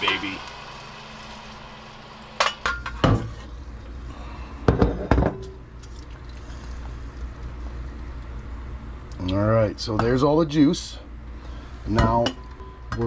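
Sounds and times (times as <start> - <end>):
metal and glass clinking on pot: 2.4 - 3.2.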